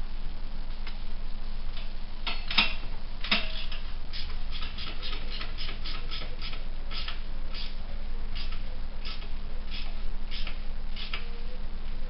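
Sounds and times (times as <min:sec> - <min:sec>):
ratchet wrench clicking: 0:03.3 - 0:07.7, 0:08.4 - 0:11.2.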